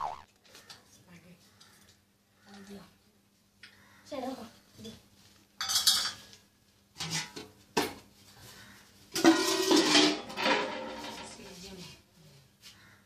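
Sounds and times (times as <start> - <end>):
metal pots and lids clanking: 9.2 - 11.3.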